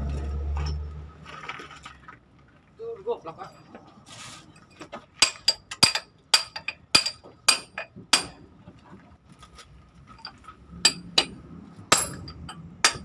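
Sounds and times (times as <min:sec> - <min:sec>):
hammer striking steel: 0:05.2 - 0:08.4, 0:10.8 - 0:13.0.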